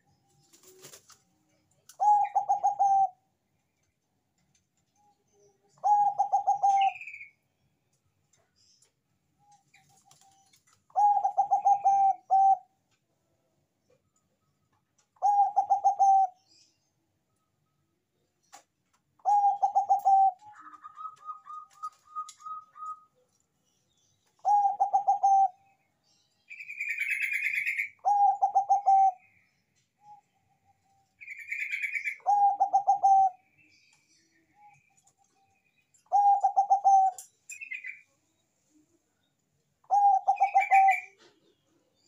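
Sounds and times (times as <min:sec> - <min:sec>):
dove cooing: 0:01.9 - 0:03.2, 0:05.8 - 0:07.1, 0:10.9 - 0:12.7, 0:15.2 - 0:16.4, 0:19.2 - 0:23.1, 0:24.4 - 0:25.7, 0:26.8 - 0:29.3, 0:31.4 - 0:33.5, 0:36.1 - 0:37.8, 0:39.9 - 0:41.6
bird chirps and trill: 0:02.0 - 0:03.2, 0:04.9 - 0:07.5, 0:09.4 - 0:12.7, 0:15.2 - 0:16.8, 0:19.2 - 0:38.4, 0:39.8 - 0:42.0.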